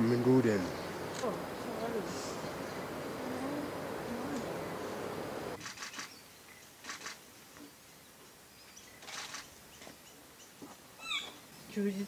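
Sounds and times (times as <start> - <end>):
bird harsh calls: 0.0 - 6.8, 11.0 - 11.5.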